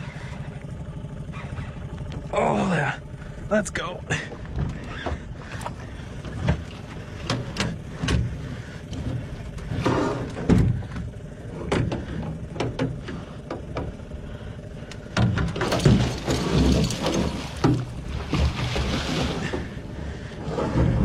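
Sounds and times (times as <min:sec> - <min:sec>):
steady low rumble: 0:00.0 - 0:21.0
water splashing: 0:15.6 - 0:19.8.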